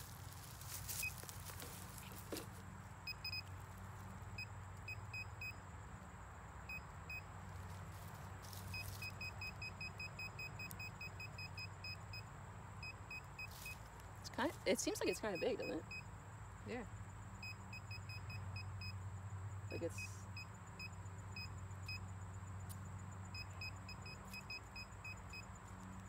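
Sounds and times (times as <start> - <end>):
metal detector beeping: 0.8 - 2.4, 3.1 - 3.5, 8.7 - 12.2, 14.9 - 16.0, 23.3 - 25.5.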